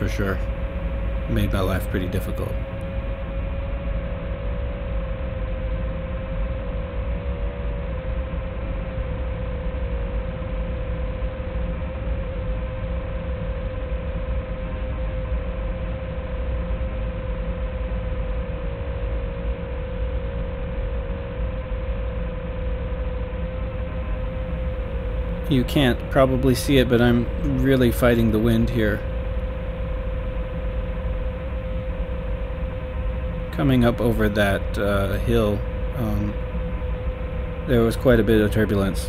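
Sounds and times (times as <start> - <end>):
thin narrow-band sound: 0.0 - 3.8, 23.3 - 39.0
drone propellers whining: 0.0 - 39.0
wind noise rumble: 23.0 - 39.0.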